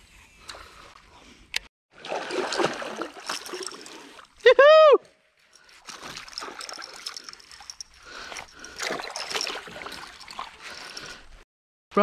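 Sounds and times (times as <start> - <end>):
fish splashing at surface: 2.0 - 4.3.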